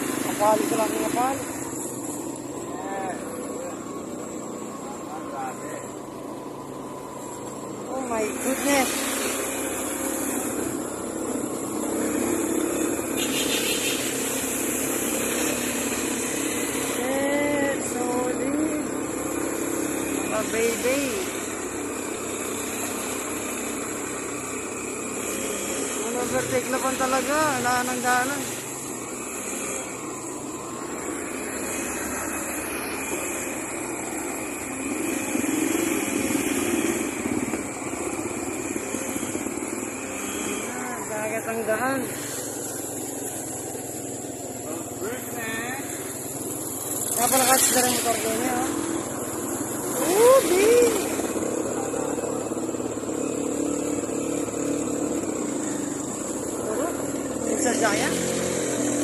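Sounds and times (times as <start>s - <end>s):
hum of traffic engines: 0.0s - 59.0s
small motorcycle engine running: 0.0s - 59.0s
floodwater washing around wheels: 6.6s - 17.2s, 42.0s - 59.0s.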